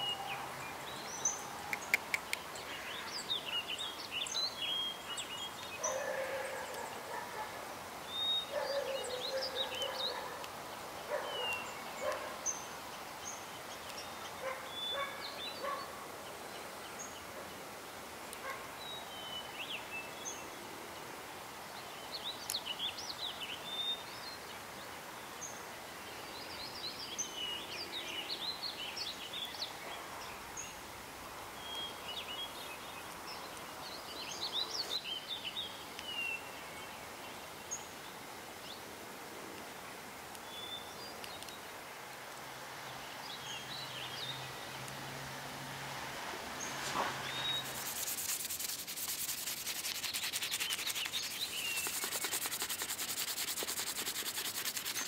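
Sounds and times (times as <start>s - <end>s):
birds chirping and trilling: 0.0s - 10.4s, 11.0s - 16.0s, 46.6s - 55.0s
outdoor background noise: 0.0s - 55.0s.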